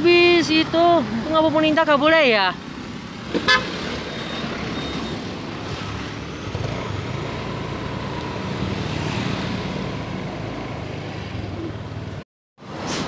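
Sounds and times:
motorbike passing: 0:03.2 - 0:12.2.

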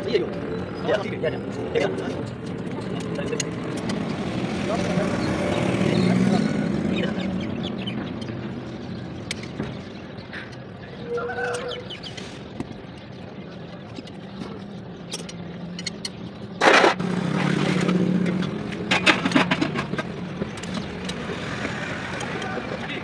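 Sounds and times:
metal spanner clinks and scrapes: 0:13.9 - 0:16.2.

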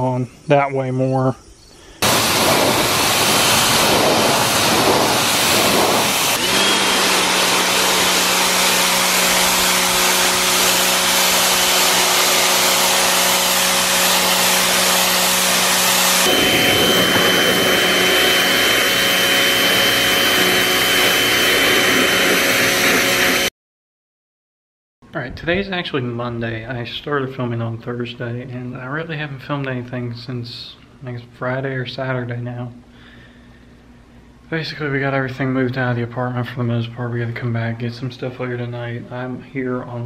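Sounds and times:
high-pressure spray hissing: 0:02.0 - 0:23.5
pressure washer motor hum: 0:02.0 - 0:23.5.

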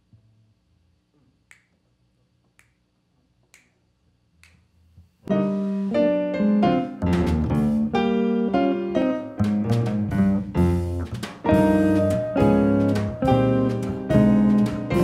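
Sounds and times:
finger snaps: 0:01.4 - 0:01.8, 0:02.5 - 0:02.8, 0:03.4 - 0:03.8, 0:04.4 - 0:04.7
jazz quartet playing: 0:05.3 - 0:15.0
piano chords: 0:05.3 - 0:15.0.

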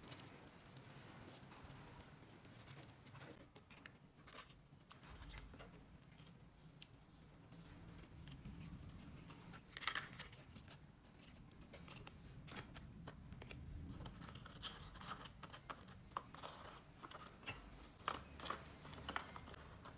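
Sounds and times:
paper and card crinkling: 0:07.7 - 0:19.9.

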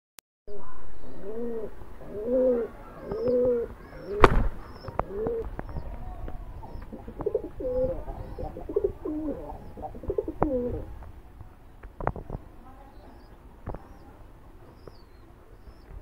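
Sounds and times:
pigeon cooing: 0:00.6 - 0:10.9.

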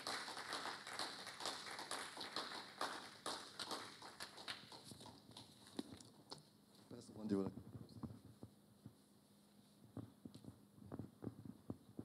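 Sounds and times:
scattered faint clapping: 0:00.0 - 0:06.5.

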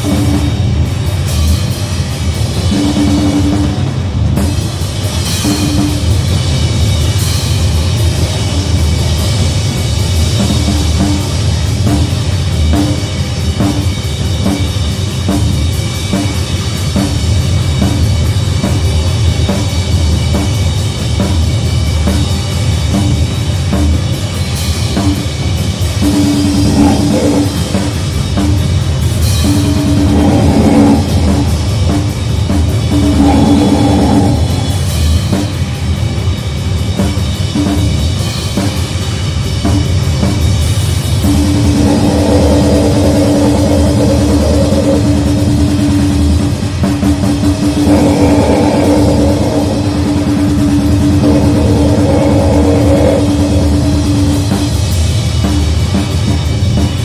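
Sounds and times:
fast dense drumming: 0:00.0 - 0:57.0
wall of noise: 0:00.0 - 0:57.0
droning pitched tone: 0:26.0 - 0:28.3, 0:29.4 - 0:35.6, 0:41.2 - 0:55.1.

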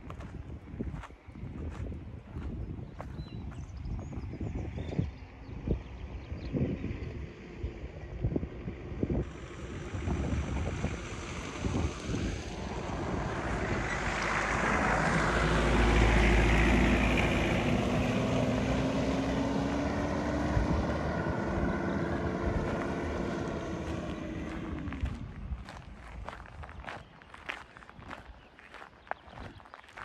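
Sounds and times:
car driving past on gravel: 0:09.2 - 0:30.0.

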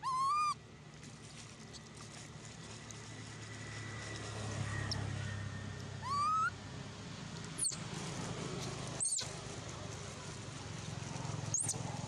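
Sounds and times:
monkey coo call: 0:00.0 - 0:00.6, 0:06.0 - 0:06.6.

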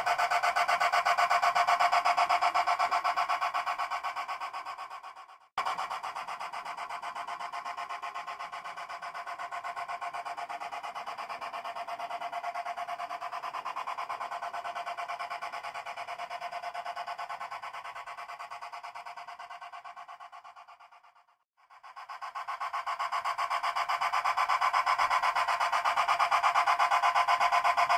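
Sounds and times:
model steam locomotive running: 0:00.0 - 0:27.9.

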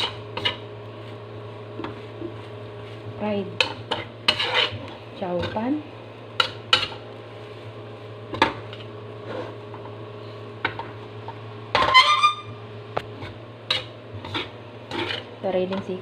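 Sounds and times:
metal spatula scraping a pan: 0:00.0 - 0:00.6, 0:03.6 - 0:05.6, 0:08.7 - 0:09.6, 0:11.8 - 0:12.5, 0:13.2 - 0:15.3
steady low hum: 0:00.0 - 0:16.0.

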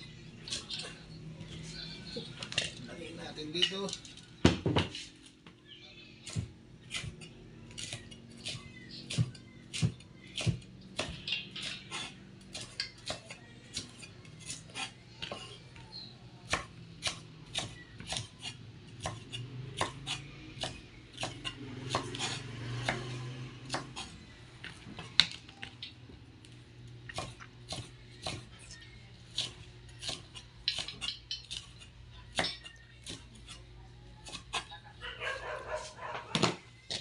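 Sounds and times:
knife chopping on cutting board: 0:16.5 - 0:24.1, 0:27.1 - 0:28.5.

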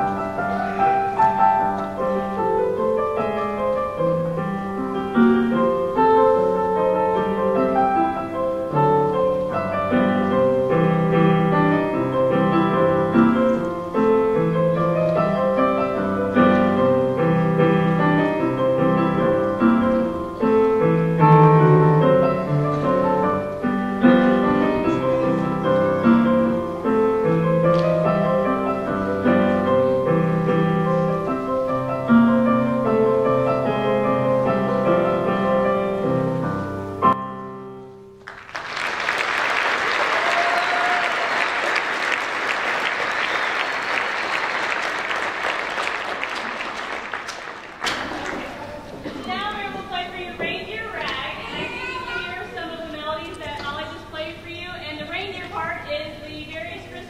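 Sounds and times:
solo piano piece: 0:00.0 - 0:38.5.

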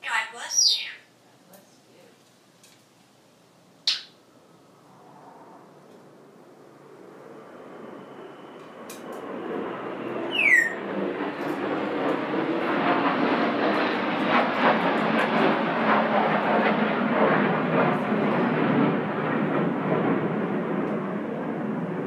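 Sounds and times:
loud rushing noise: 0:04.2 - 0:18.3
bird's falling whistle: 0:10.3 - 0:10.8.

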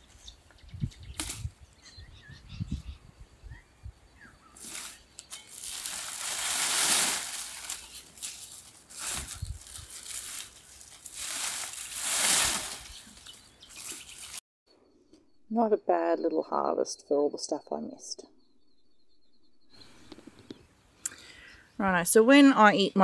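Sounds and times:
dry vines rustling and crackling: 0:04.5 - 0:14.4.

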